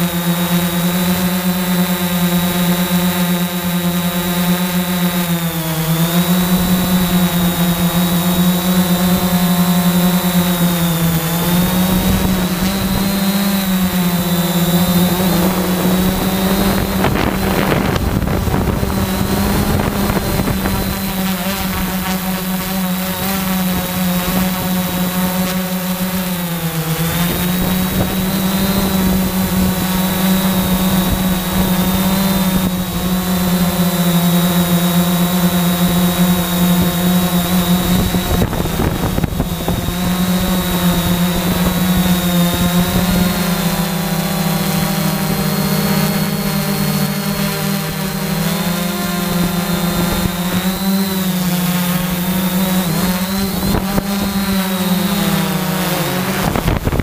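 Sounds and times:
drone motors buzzing: 0:00.0 - 0:57.0
wind on microphone: 0:06.3 - 0:26.2, 0:27.0 - 0:34.1, 0:35.8 - 0:43.9, 0:52.0 - 0:55.6, 0:56.2 - 0:57.0.

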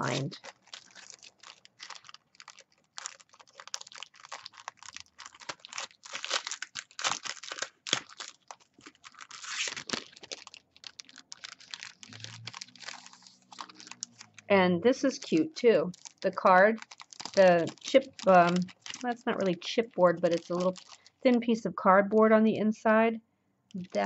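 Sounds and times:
cellophane crinkling: 0:00.0 - 0:21.6.

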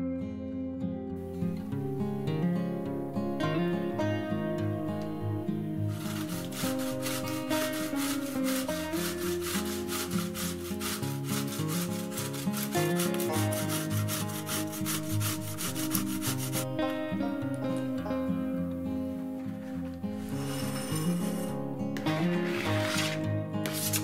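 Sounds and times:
grating on metal grater: 0:05.9 - 0:16.7, 0:22.4 - 0:24.0.

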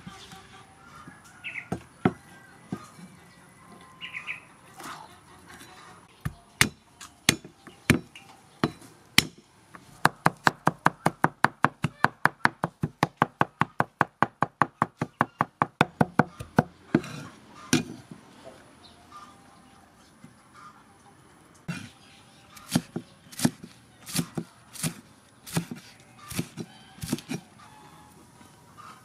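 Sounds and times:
cleaver chopping on wooden block: 0:06.2 - 0:09.4, 0:10.0 - 0:18.1, 0:22.6 - 0:27.4.

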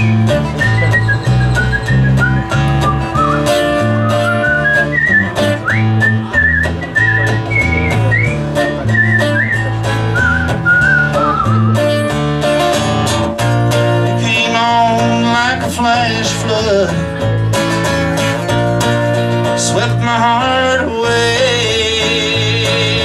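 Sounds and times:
whistled melody: 0:00.0 - 0:12.2
lead line with bent notes: 0:00.0 - 0:19.6
electric bass: 0:00.0 - 0:23.0
strummed acoustic guitar: 0:00.0 - 0:23.0.

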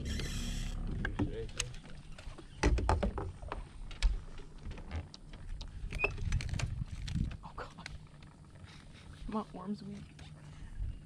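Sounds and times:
knocks and thumps on a boat: 0:00.8 - 0:07.4.

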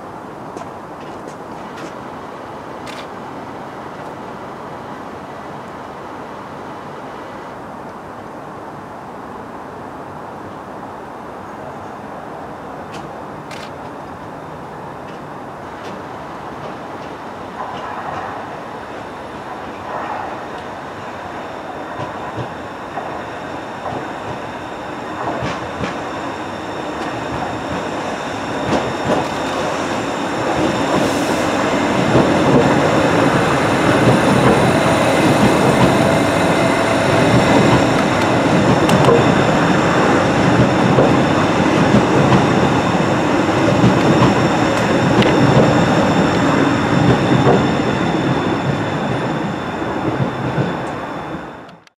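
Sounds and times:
train rumbling past: 0:11.6 - 0:51.9.

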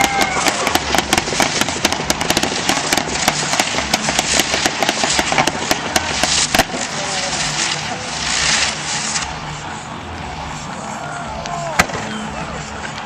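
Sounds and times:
loud firework bang: 0:00.0 - 0:09.4, 0:11.8 - 0:12.2
fireworks cracking and popping: 0:00.0 - 0:13.0.

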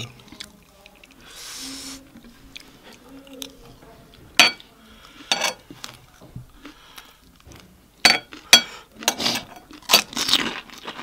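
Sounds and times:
metal spoon clinking on plates: 0:04.4 - 0:04.6, 0:05.3 - 0:05.6, 0:08.0 - 0:10.1
crunching of crisp shells: 0:08.1 - 0:11.0.

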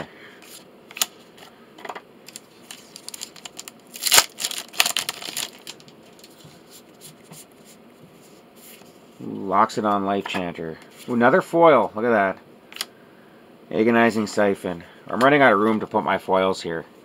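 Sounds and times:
foil wrapper ripping: 0:02.3 - 0:06.4
foil crinkling: 0:02.3 - 0:06.5.

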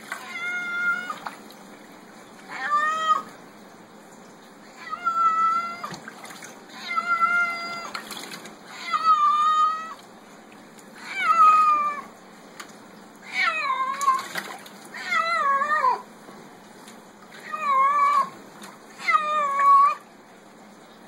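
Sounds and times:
cat meowing: 0:00.2 - 0:01.2, 0:02.5 - 0:03.3, 0:11.0 - 0:12.1, 0:13.2 - 0:14.3.

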